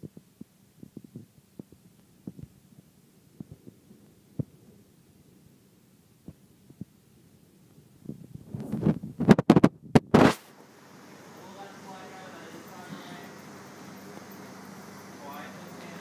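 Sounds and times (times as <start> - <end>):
soft low thumps: 0.0 - 4.8
faint steady hum: 0.0 - 16.0.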